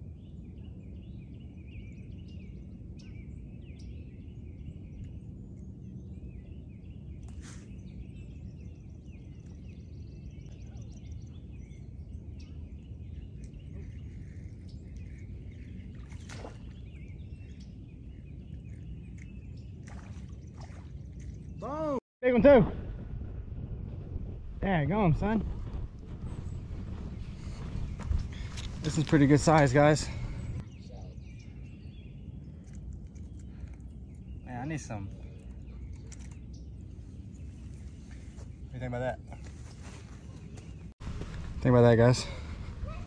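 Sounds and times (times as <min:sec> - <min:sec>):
birds chirping: 0:00.0 - 0:22.4, 0:24.6 - 0:43.0
low background rumble: 0:07.8 - 0:38.8.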